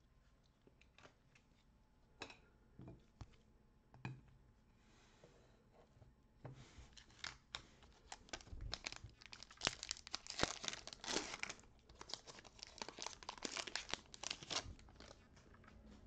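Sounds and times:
foil wrapper tearing and crinkling: 0:07.0 - 0:15.2.

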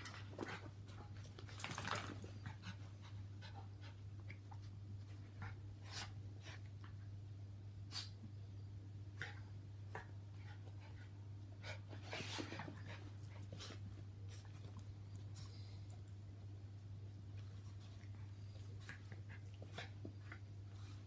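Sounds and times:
dogs panting and snuffling: 0:00.0 - 0:07.0, 0:09.2 - 0:21.0
dogs scuffling: 0:01.2 - 0:02.4.

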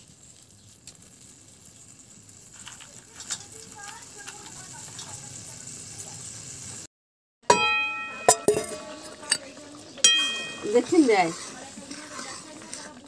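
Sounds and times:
curry bubbling in a pot: 0:00.0 - 0:06.9, 0:08.7 - 0:13.0
metal ladle striking pot: 0:07.4 - 0:11.5.

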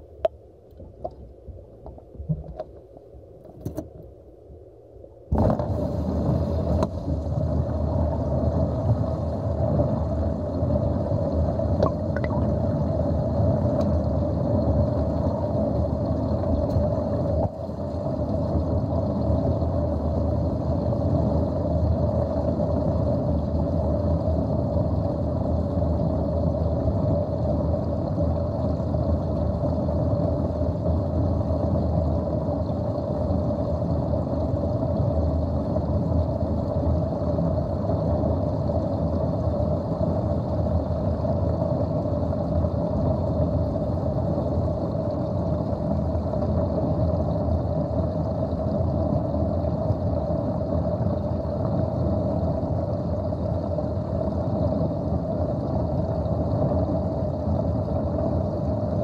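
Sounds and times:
water draining down plughole: 0:05.3 - 0:23.8.

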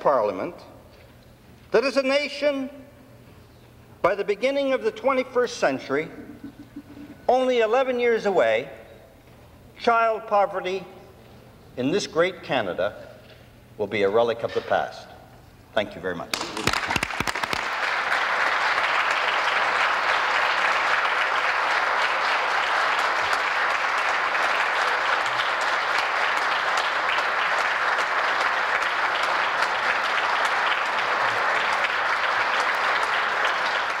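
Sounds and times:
crowd applauding: 0:16.3 - 0:34.0.

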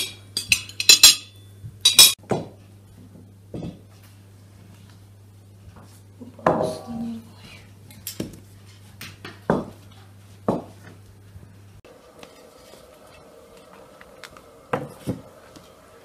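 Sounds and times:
tableware clinking: 0:00.0 - 0:02.2.

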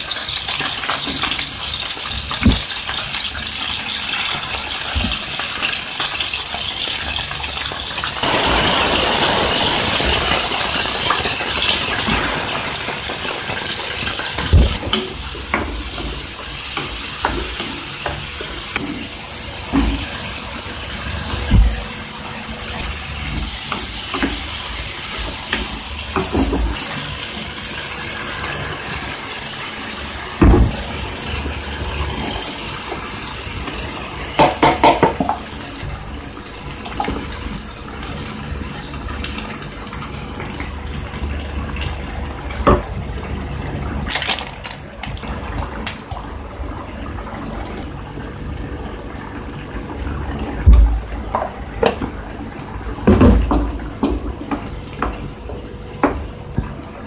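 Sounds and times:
food sizzling in frying pan: 0:00.0 - 0:47.2, 0:48.3 - 0:57.0
utensil knocking on pan: 0:34.4 - 0:35.4.

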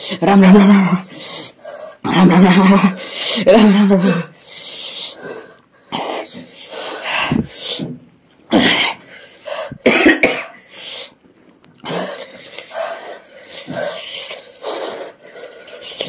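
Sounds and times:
person coughing and throat clearing: 0:09.7 - 0:10.7.

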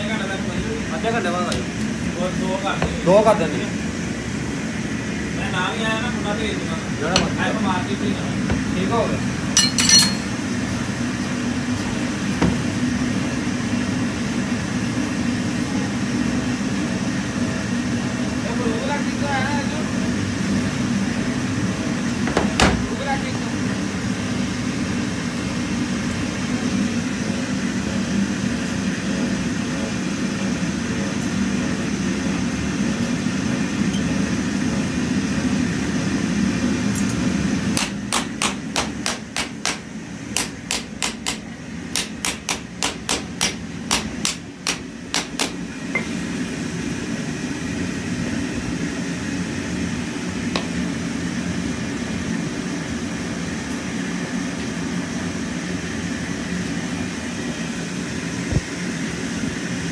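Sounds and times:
hammer tapping on metal: 0:37.8 - 0:46.1.

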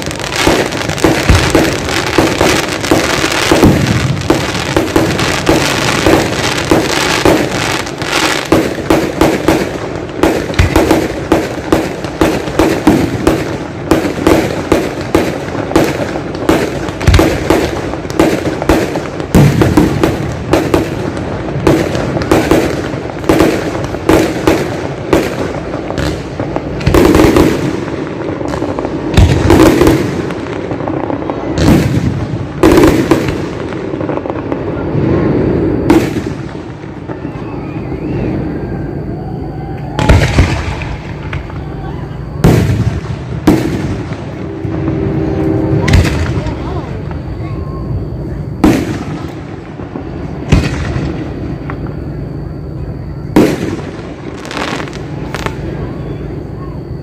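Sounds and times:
fireworks bangs and crackles: 0:00.0 - 0:57.0
fireworks booms: 0:00.0 - 0:57.0.

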